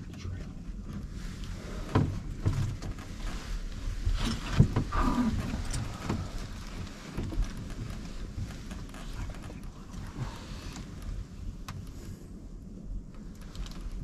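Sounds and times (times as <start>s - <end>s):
knocks and bumps on wood: 1.8s - 3.2s, 4.1s - 9.6s.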